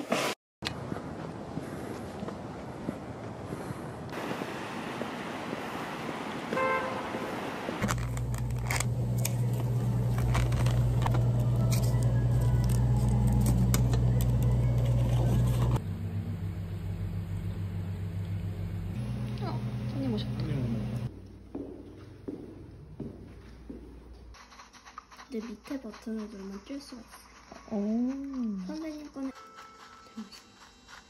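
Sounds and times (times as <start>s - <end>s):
outdoor street noise: 0.0s - 21.2s
car horn toot: 6.5s - 7.3s
steady low hum: 7.8s - 24.4s.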